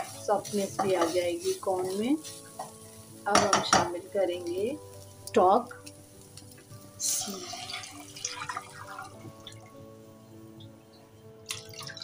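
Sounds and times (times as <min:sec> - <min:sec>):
soft background music: 0:00.0 - 0:12.0
stock pouring into a hot pan: 0:05.9 - 0:09.8, 0:11.4 - 0:12.0.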